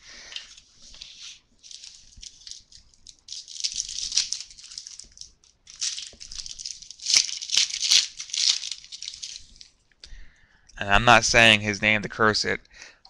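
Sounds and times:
cards sliding and rubbing: 0.3s - 2.8s.

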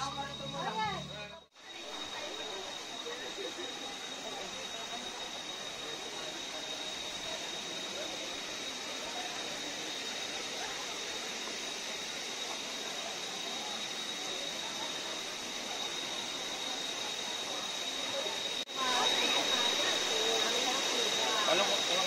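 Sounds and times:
high-pitched tone: 0.0s - 1.5s
faint crowd voices: 0.0s - 22.0s.

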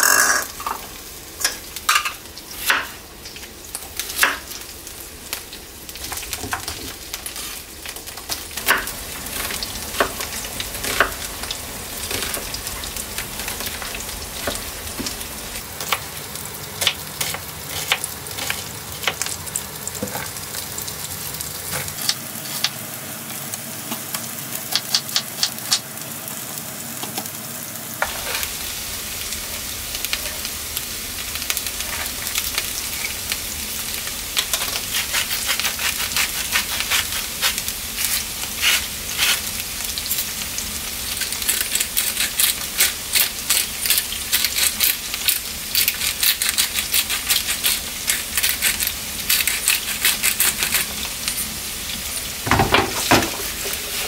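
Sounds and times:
vegetables sizzling in oil: 0.0s - 54.0s
pepper mill grinding: 41.0s - 51.6s.

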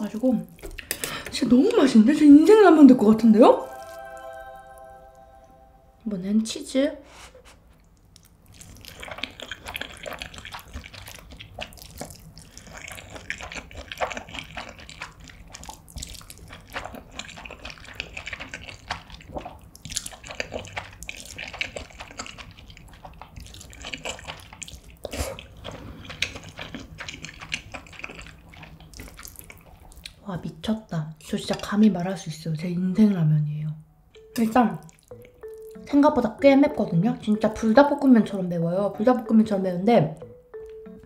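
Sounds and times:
person slurping and chewing noodles: 7.8s - 30.2s, 34.8s - 35.8s.

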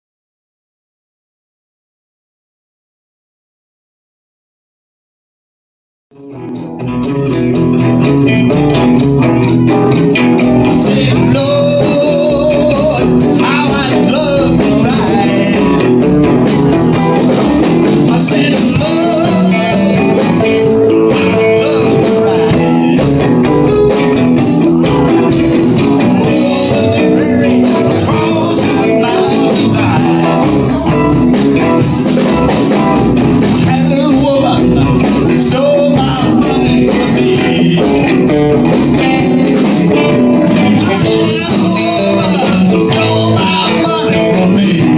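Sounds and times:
live rock band playing: 6.2s - 44.9s.

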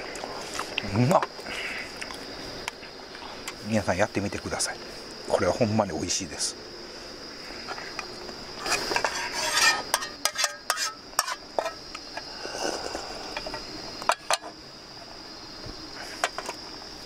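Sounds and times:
metal spoon scraping mess tin: 8.6s - 11.8s.

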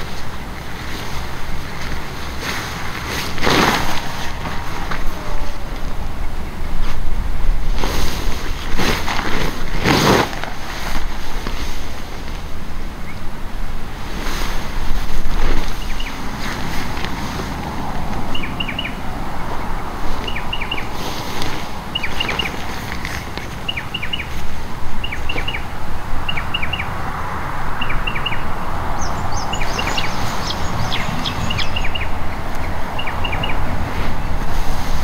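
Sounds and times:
steady rushing noise: 0.0s - 35.0s
bird chirping falling call: 15.8s - 16.2s, 18.3s - 19.0s, 20.2s - 20.9s, 21.9s - 24.4s, 25.0s - 27.0s, 27.8s - 33.7s
higher-pitched bird rapid chirps: 18.3s - 19.0s, 20.2s - 20.9s, 21.9s - 22.6s, 23.6s - 24.4s, 25.0s - 27.0s, 27.7s - 33.7s.

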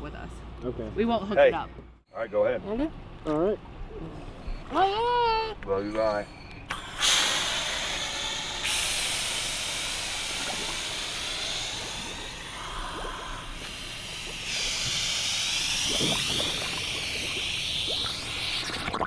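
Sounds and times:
air hissing through regulator: 6.0s - 19.0s
faint bubbling: 6.7s - 19.0s.

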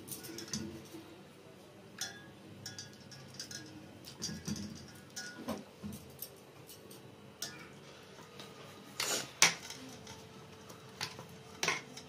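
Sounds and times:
utensil clinking against steel: 0.0s - 1.0s, 2.0s - 7.7s.

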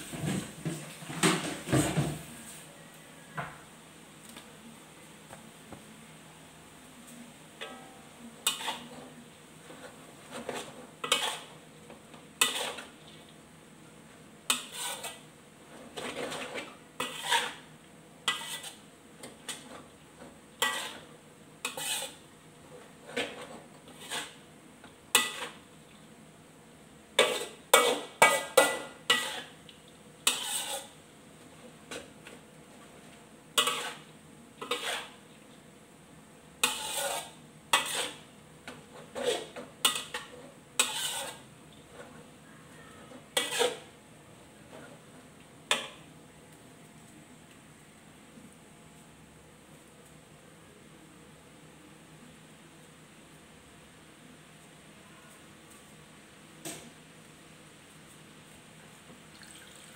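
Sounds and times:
ladle and spatula scraping a wok: 0.0s - 2.7s, 7.6s - 13.4s, 14.4s - 24.5s, 25.1s - 25.7s, 27.2s - 29.6s, 30.2s - 35.4s, 36.6s - 44.0s, 44.6s - 46.1s.

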